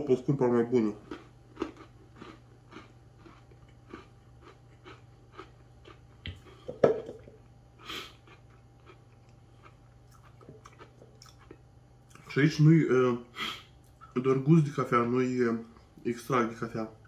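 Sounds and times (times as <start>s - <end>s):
person chewing biscuit: 0.9s - 6.7s, 7.4s - 12.3s.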